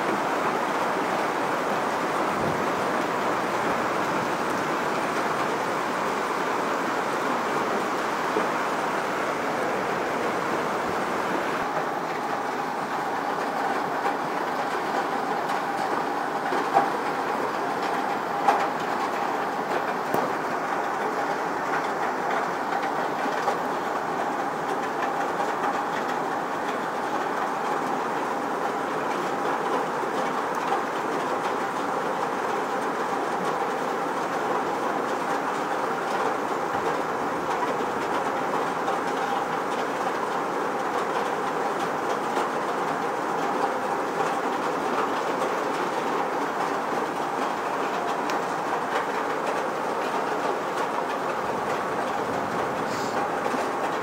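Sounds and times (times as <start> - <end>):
hail clattering: 0.1 - 54.0.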